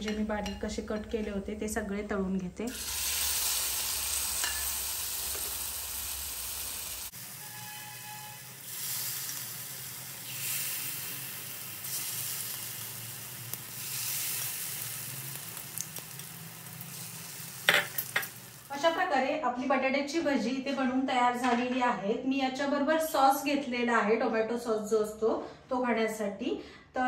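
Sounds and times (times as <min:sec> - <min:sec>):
oil sizzling: 0:02.7 - 0:19.1.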